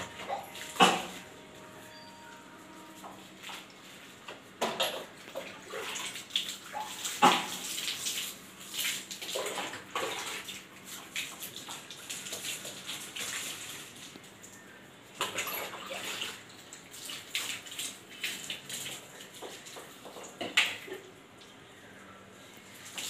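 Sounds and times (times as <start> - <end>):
mug scooping water in bucket: 0.0 - 14.2
water splashing onto wet floor: 4.6 - 14.6, 15.2 - 21.5.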